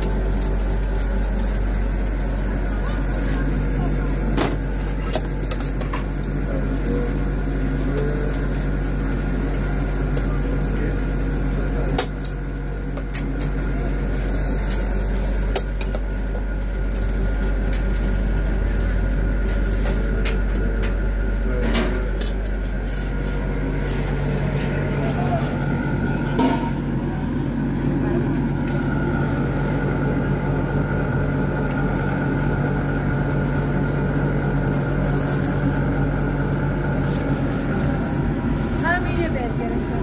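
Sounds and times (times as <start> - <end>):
food stall background hum: 0.0 - 40.0.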